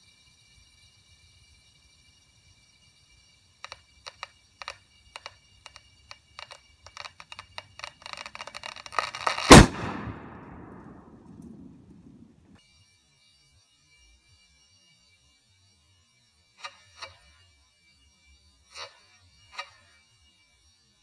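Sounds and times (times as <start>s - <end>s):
ball casing crackling clicks: 3.7s - 12.3s
ball bursting bang: 9.4s - 12.5s.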